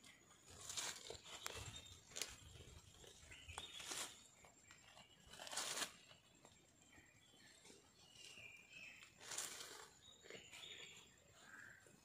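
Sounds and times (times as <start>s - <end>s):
goat tearing grass: 0.3s - 6.3s, 9.0s - 10.9s.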